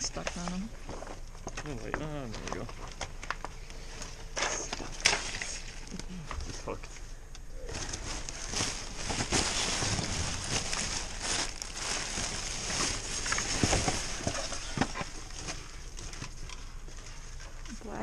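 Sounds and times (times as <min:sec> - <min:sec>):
plastic bags crinkling: 0:07.6 - 0:18.0.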